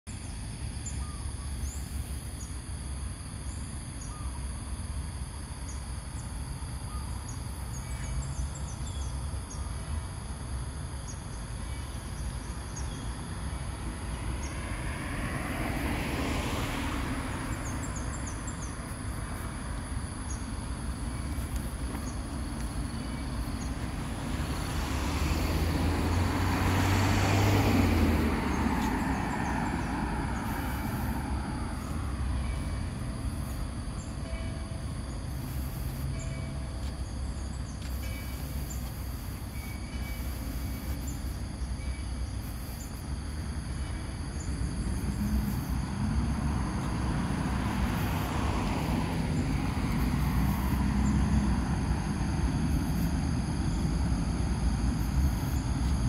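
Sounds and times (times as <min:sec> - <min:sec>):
traffic rumble: 0:00.1 - 0:56.0
vehicle passing: 0:13.3 - 0:56.0.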